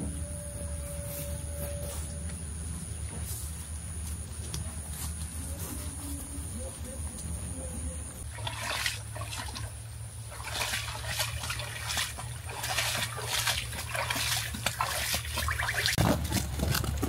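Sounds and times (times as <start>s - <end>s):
steady low hum: 0.0s - 17.0s
water splashing and trickling: 8.2s - 16.1s.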